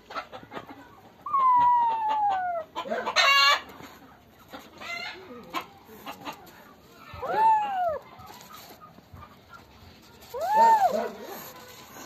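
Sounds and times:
chickens clucking: 0.0 - 12.0
short harsh cry: 10.4 - 11.3.

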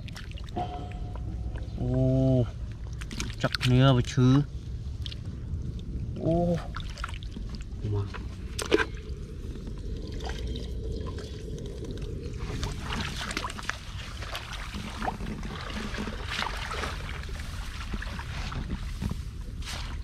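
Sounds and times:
steady low rumble: 0.0 - 20.0
water splashing and trickling: 0.0 - 20.0.

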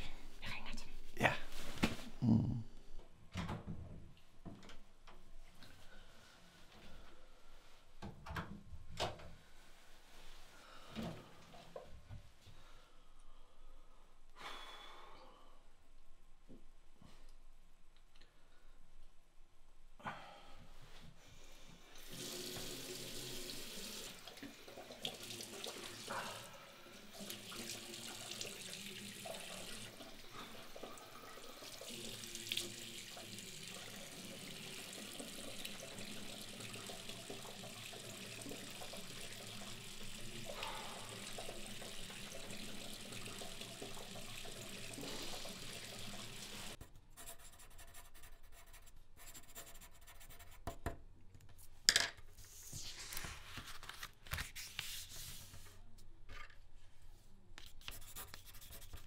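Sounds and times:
tap water running into sink: 22.0 - 26.0, 27.1 - 46.8.

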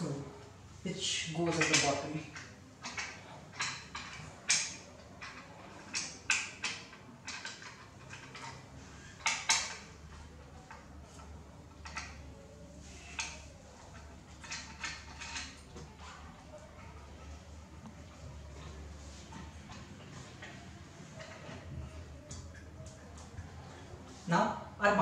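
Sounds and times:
small metallic clicks and knocks: 1.4 - 16.0.

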